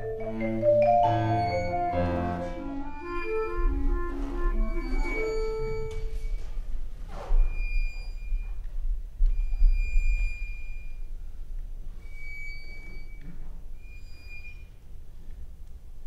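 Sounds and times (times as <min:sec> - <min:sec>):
high held notes: 0:00.0 - 0:06.5.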